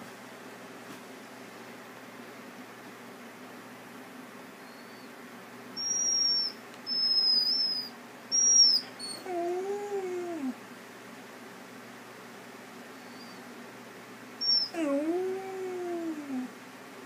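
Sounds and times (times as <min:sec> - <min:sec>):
dog howling: 0:05.8 - 0:10.6, 0:14.4 - 0:16.5
dog whining: 0:05.8 - 0:10.6, 0:13.0 - 0:13.5, 0:14.4 - 0:16.6.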